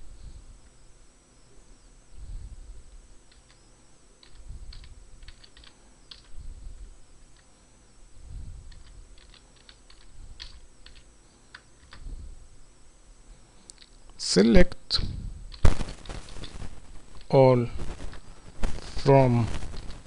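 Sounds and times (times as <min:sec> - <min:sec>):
keyboard typing clicks: 0:03.3 - 0:03.6, 0:04.2 - 0:06.3, 0:08.7 - 0:12.0.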